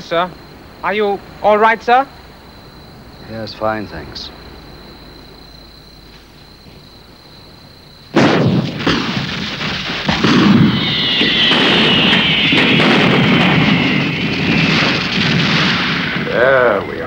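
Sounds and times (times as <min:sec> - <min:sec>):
loud blast: 0:08.1 - 0:17.0
rapid bangs and crackling: 0:08.1 - 0:17.0
high whistle falling in pitch: 0:10.0 - 0:17.0.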